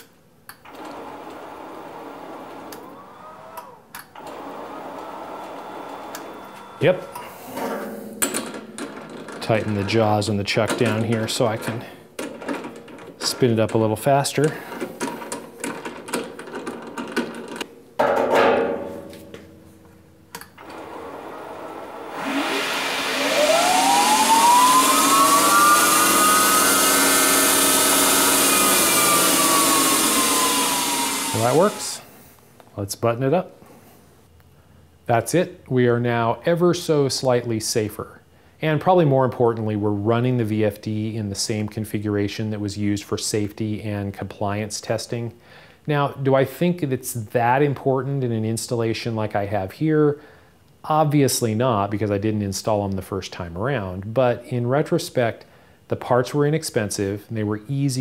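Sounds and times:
click: 0:00.0 - 0:00.6, 0:03.6 - 0:04.1, 0:20.3 - 0:20.6
lathe spindle running: 0:00.7 - 0:07.8, 0:20.6 - 0:32.0
metallic clank with ringing: 0:18.0 - 0:19.8.

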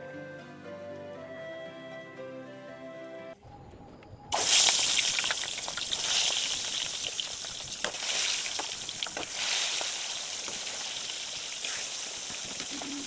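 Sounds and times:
fish frying in hot oil: 0:04.3 - 0:13.0.

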